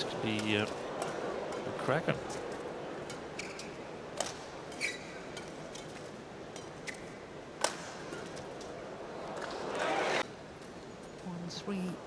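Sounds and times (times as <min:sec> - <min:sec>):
arena crowd noise: 0:00.0 - 0:06.6, 0:07.3 - 0:10.4
court shoes squeaking: 0:00.2 - 0:07.2
rackets striking shuttlecock: 0:00.2 - 0:08.7.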